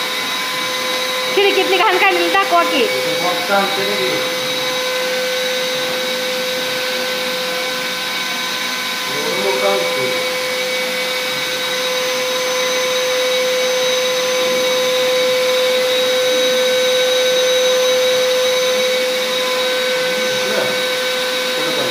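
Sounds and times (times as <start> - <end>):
vacuum cleaner running: 0.0 - 21.9.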